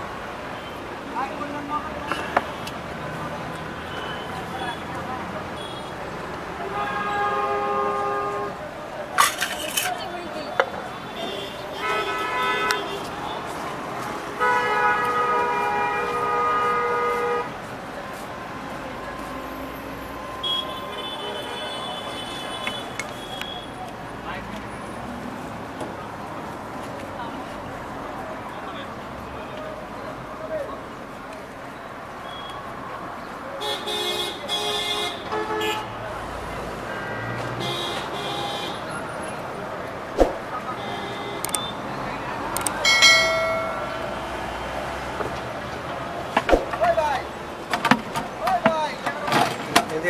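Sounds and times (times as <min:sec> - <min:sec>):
street noise hum: 0:00.0 - 0:50.0
vehicle horns honking: 0:06.6 - 0:08.6, 0:11.1 - 0:13.4, 0:14.4 - 0:17.6, 0:20.4 - 0:23.8, 0:33.6 - 0:36.0, 0:42.8 - 0:44.7.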